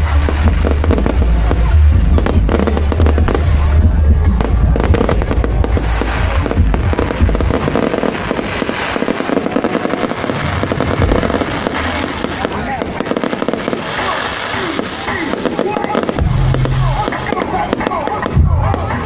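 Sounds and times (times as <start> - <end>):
heavy low rumble: 0.0 - 14.0
fireworks crackling and popping: 0.0 - 19.0.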